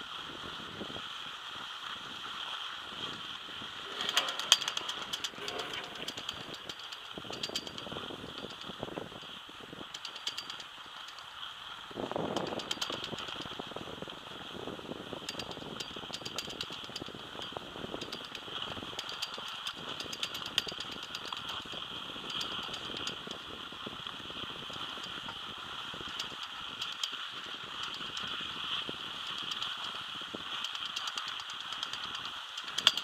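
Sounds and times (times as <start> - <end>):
skis sliding on packed snow: 0.0 - 3.9
lift pole rattling and clicking: 3.7 - 14.0, 15.1 - 33.0.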